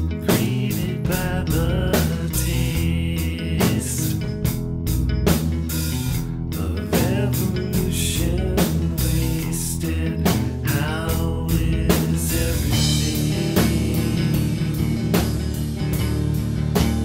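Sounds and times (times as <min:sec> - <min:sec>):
rock song with guitars and drums: 0:00.0 - 0:17.0
drum hits: 0:11.5 - 0:17.0.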